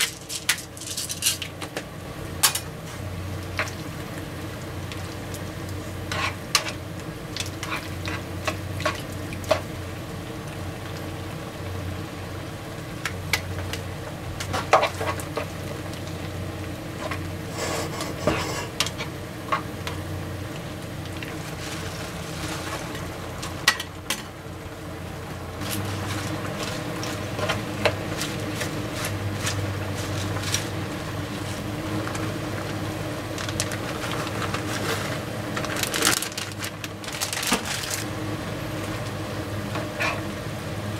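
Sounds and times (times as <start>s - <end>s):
steady low hum: 0.0s - 40.9s
sauce sizzling: 1.5s - 37.2s
tongs tapping and scraping pan: 6.1s - 6.8s.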